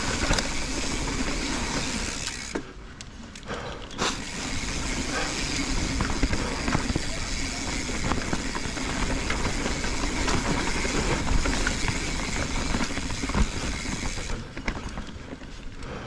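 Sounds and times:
bike chain and frame rattling: 0.0 - 2.6, 3.3 - 16.0
bike tyres over dirt: 0.0 - 2.8, 4.0 - 16.0.

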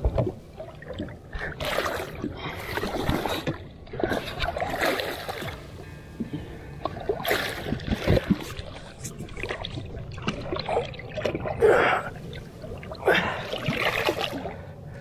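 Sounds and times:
water splashing against boat hull: 0.0 - 14.6
fish thrashing: 6.3 - 14.6.

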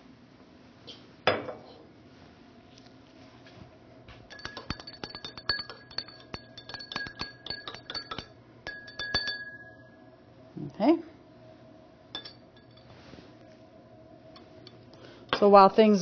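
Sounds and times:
glass rod clinking in beaker: 4.3 - 10.0, 12.1 - 12.9.

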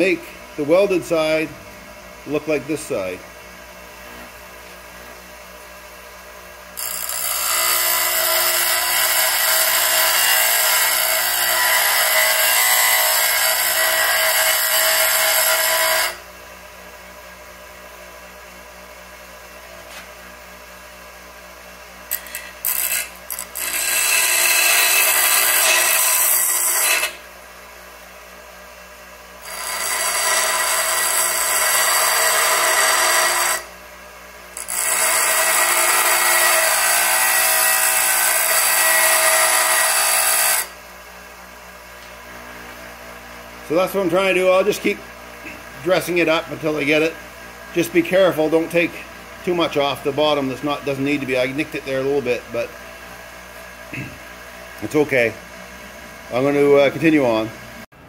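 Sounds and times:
grinder wheel spinning free hum: 5.0 - 57.8
bench grinder grinding metal: 6.7 - 16.2, 22.1 - 27.3, 29.4 - 33.8, 34.5 - 40.8, 43.6 - 52.8.

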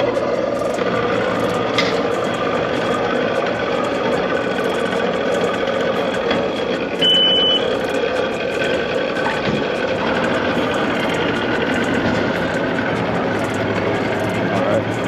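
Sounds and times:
outboard motors idling: 0.0 - 15.0
short high-pitched beep: 7.0 - 7.7.

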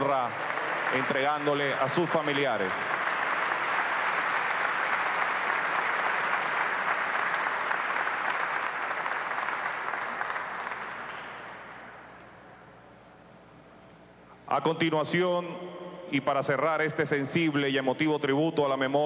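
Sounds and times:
crowd applauding: 0.0 - 12.1.

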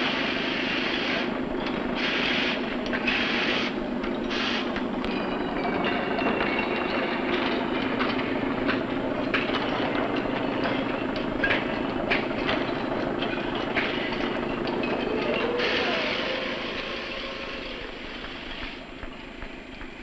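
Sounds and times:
machinery rumble: 0.0 - 20.0.

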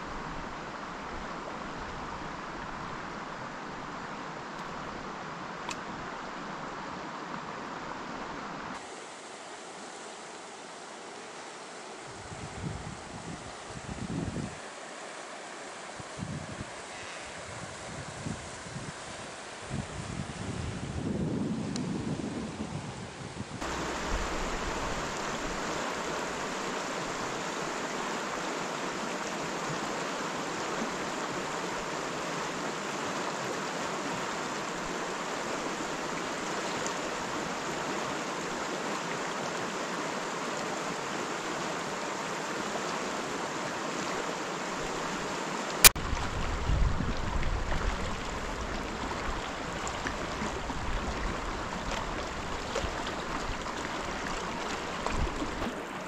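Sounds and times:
water rushing over rocks: 23.6 - 56.0.

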